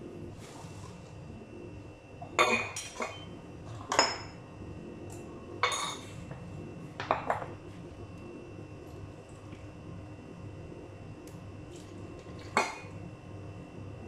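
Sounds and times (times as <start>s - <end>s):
dishes and utensils clattering: 2.3s - 4.4s, 5.6s - 6.1s.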